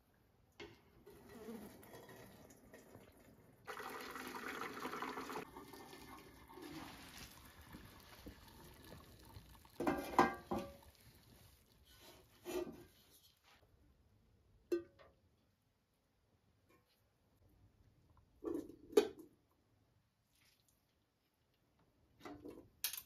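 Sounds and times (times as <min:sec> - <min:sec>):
water pouring through metal strainer: 0:01.1 - 0:12.6
metal pots clanking: 0:07.8 - 0:11.0.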